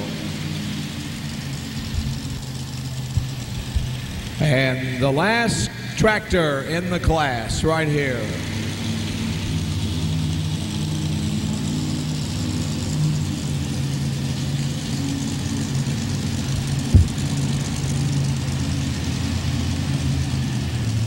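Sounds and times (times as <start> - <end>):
tractor engine idling: 0.0 - 21.0
sharp thump: 16.9 - 17.5.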